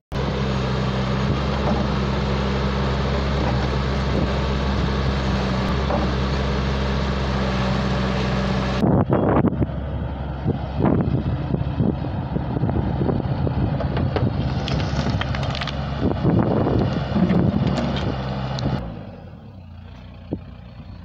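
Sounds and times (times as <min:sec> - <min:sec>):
diesel engine running: 0:00.1 - 0:21.0
stones rattling in bucket: 0:14.4 - 0:15.8.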